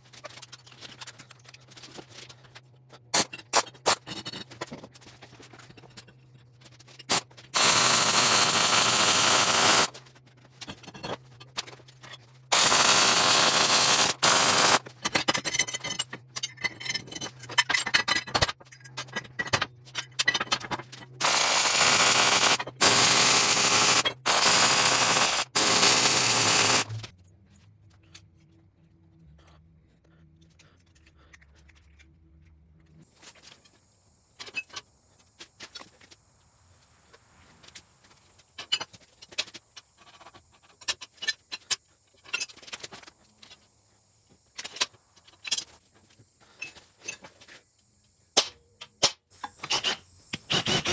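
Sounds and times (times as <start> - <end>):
welding arc crackling: 7.1 - 9.9, 12.5 - 14.8, 21.2 - 27.0.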